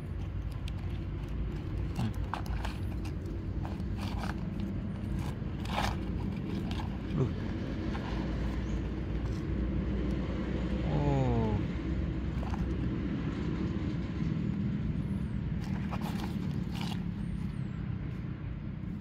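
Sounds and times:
light clicks and scrapes: 0.0s - 10.2s, 15.6s - 18.2s
low motor hum: 0.0s - 19.0s.

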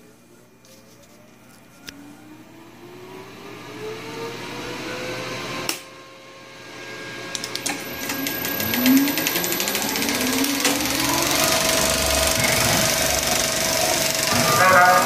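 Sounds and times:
motors whining: 6.7s - 15.0s
projector clatter: 7.4s - 15.0s.

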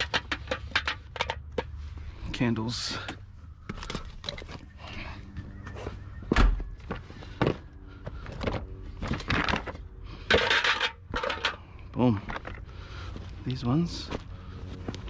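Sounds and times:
objects knocking and clicking: 0.0s - 1.8s, 8.4s - 12.6s.

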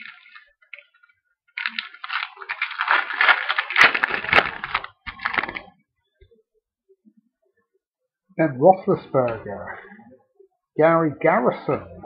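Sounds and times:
wrapper crinkling as torn open: 0.0s - 5.7s.

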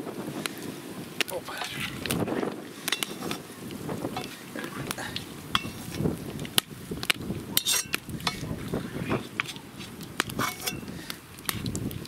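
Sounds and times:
hot oil clicking: 0.4s - 12.0s
metal spatula scraping a pot: 2.9s - 3.5s, 4.2s - 4.4s, 7.6s - 8.6s, 9.4s - 11.0s.

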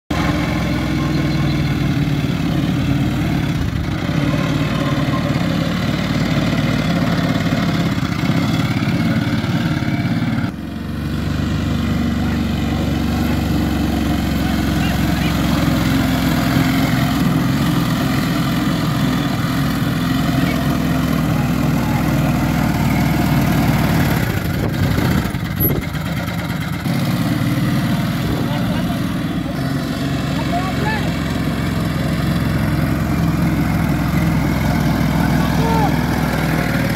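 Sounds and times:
quad bike engine running: 0.1s - 36.9s.

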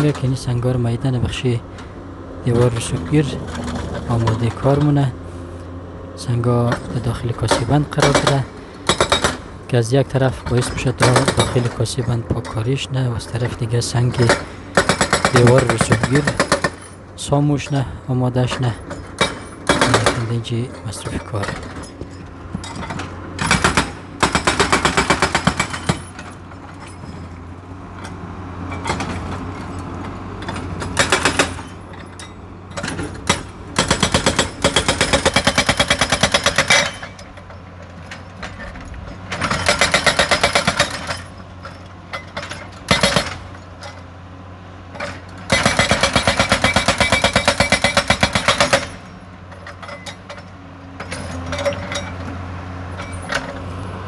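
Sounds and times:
diesel engine running: 0.0s - 54.0s
hydraulic breaker hammering rock: 6.6s - 9.5s, 10.2s - 17.0s, 18.4s - 27.3s, 30.4s - 44.0s, 44.9s - 52.3s.

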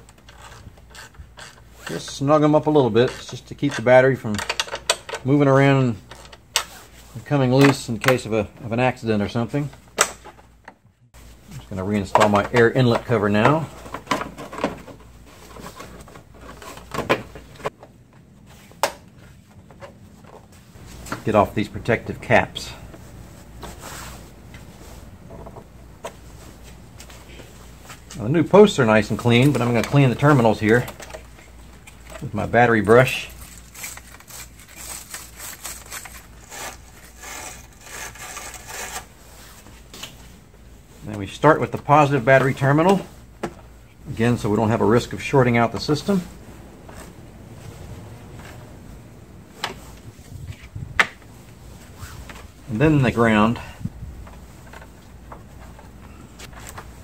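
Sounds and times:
wire brush scraping: 31.8s - 39.7s.

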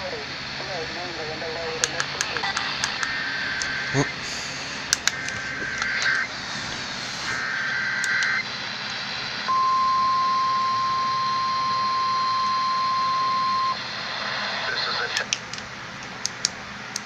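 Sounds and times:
warbling digital data bursts: 5.2s - 8.5s.

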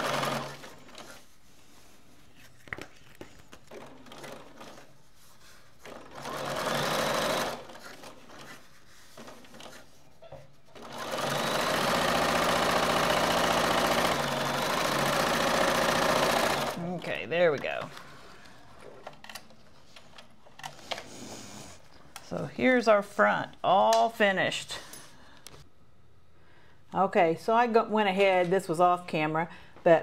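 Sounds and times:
electric sewing machine stitching: 0.0s - 1.0s, 5.9s - 8.1s, 10.8s - 16.8s.

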